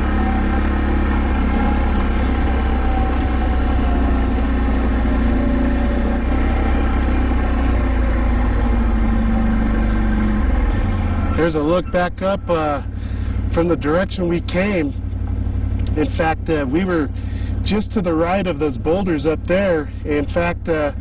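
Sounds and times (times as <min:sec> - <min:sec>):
quad bike engine drone: 0:00.0 - 0:21.0.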